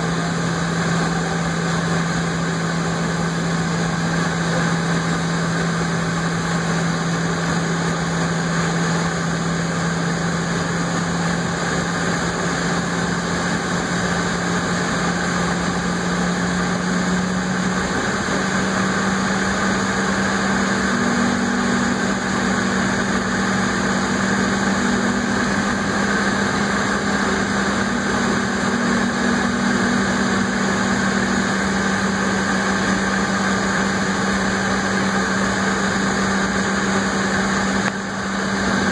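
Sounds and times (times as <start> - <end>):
jet engines running at low power: 0.0 - 38.9
steady hum: 0.0 - 38.9.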